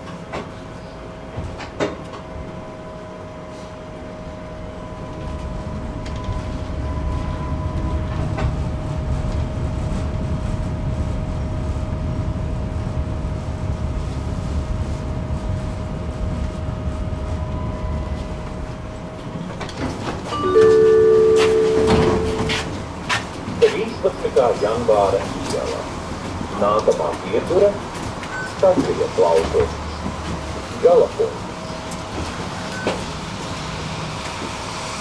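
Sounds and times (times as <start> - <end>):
tram wheels rumbling on track: 0.0 - 35.0
high whine: 20.3 - 22.8.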